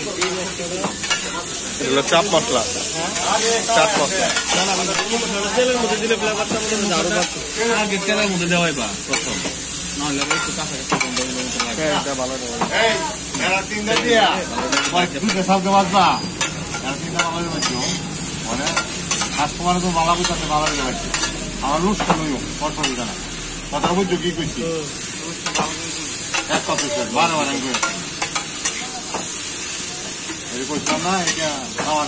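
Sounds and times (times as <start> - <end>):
frying oil sizzling: 0.0 - 32.0
metal spatula scraping griddle: 14.7 - 19.4.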